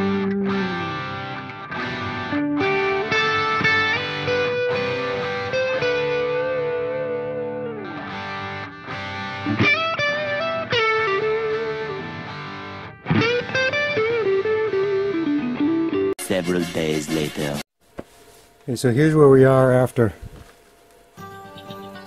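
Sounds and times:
distorted electric guitar lead: 0:00.0 - 0:16.3.

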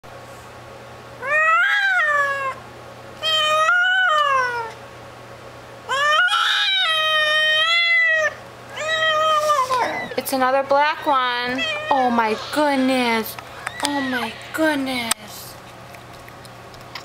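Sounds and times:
cat yowling: 0:01.2 - 0:02.6, 0:03.2 - 0:04.8, 0:05.9 - 0:10.4, 0:11.4 - 0:13.0, 0:13.6 - 0:14.8.

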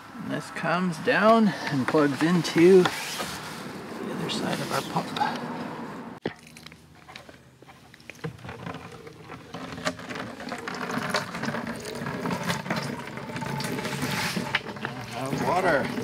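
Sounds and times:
water pouring into bucket: 0:08.6 - 0:16.0.

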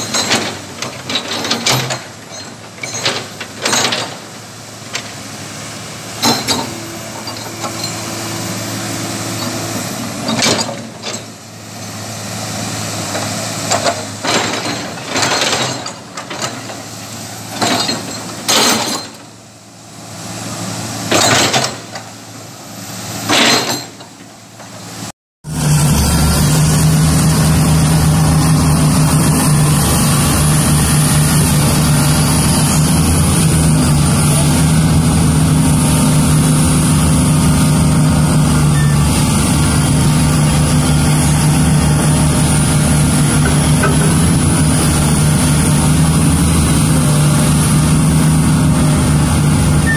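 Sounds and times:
excavator bucket clanking: 0:00.0 - 0:04.3, 0:06.2 - 0:08.2, 0:10.2 - 0:12.0, 0:13.1 - 0:19.4, 0:21.1 - 0:22.2, 0:42.9 - 0:45.6
excavator diesel engine running: 0:00.0 - 0:49.9
large excavator engine drone: 0:00.0 - 0:49.9.

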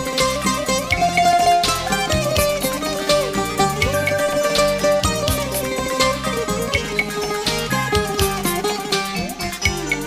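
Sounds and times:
plucked-string lead melody: 0:00.0 - 0:10.0.

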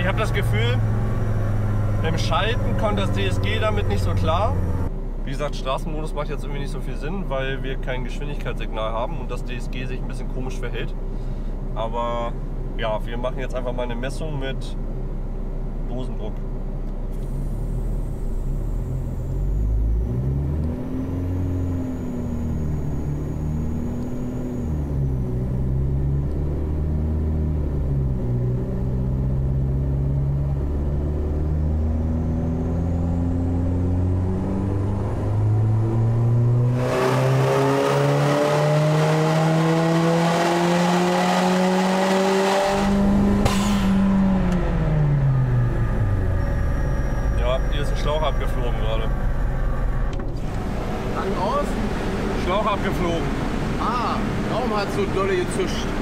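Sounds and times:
car engine revving: 0:00.0 - 0:04.9, 0:17.1 - 0:56.0.

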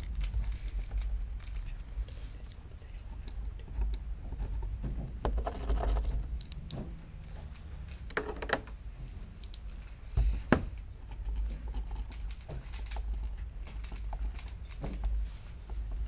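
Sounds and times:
small clicks and taps: 0:09.4 - 0:09.8.

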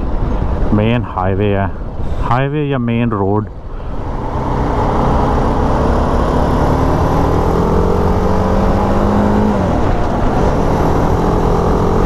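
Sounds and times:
wind rumble on microphone: 0:00.0 - 0:12.0
motorcycle engine accelerating: 0:03.9 - 0:12.0.

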